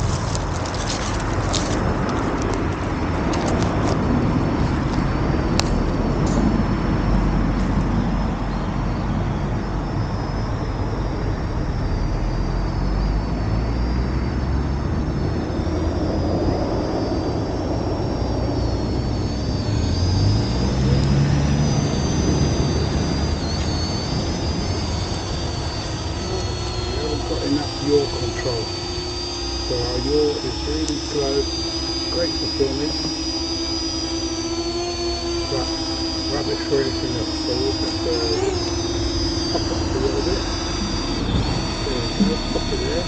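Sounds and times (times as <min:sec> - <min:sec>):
drone propeller whine: 0:00.0 - 0:43.0
low rumbling noise: 0:00.0 - 0:43.0
sharp clicks: 0:30.5 - 0:39.9.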